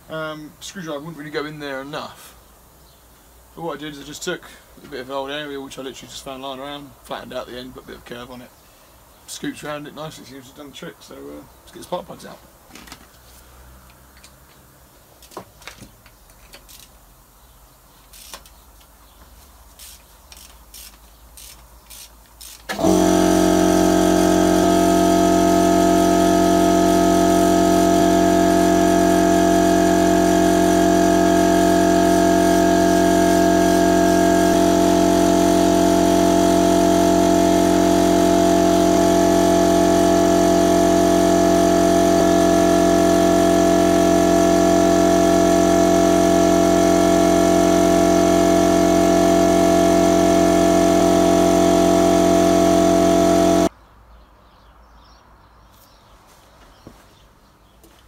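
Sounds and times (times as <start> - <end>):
loud machine drone: 22.7 - 53.7.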